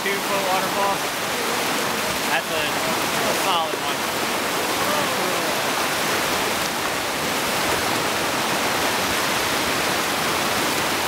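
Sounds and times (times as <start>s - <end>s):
water rushing over rocks: 0.0s - 11.0s.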